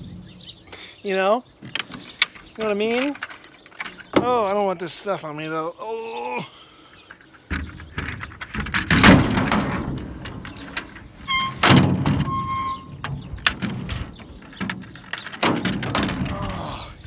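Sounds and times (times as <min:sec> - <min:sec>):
knocking and clattering: 0:07.5 - 0:16.7.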